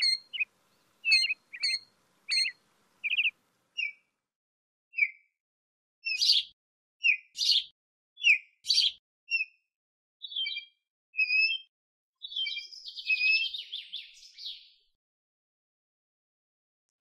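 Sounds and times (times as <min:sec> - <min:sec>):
bird stuttering trill: 0:00.0 - 0:03.9
bird calling: 0:00.0 - 0:04.0.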